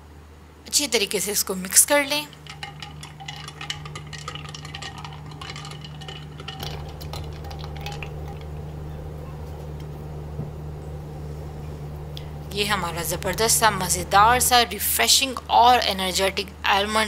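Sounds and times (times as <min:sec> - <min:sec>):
steady low hum: 0:00.0 - 0:17.0
spoon and ice clinking in glass: 0:02.3 - 0:08.6.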